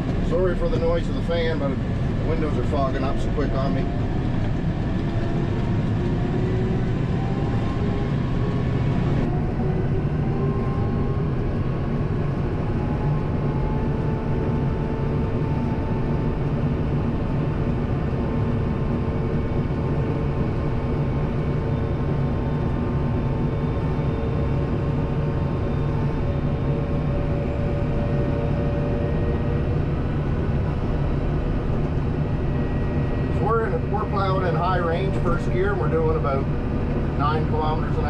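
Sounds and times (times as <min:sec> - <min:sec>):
tractor diesel engine running: 0:16.0 - 0:38.0.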